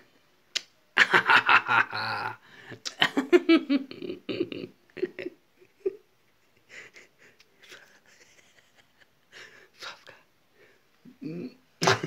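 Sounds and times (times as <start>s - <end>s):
man laughing heartily: 1.0s - 6.0s, 6.6s - 9.7s.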